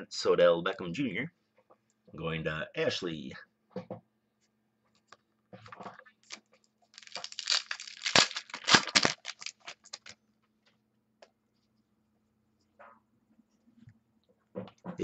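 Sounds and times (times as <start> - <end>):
foil wrapper tearing and crinkling: 6.2 - 10.2.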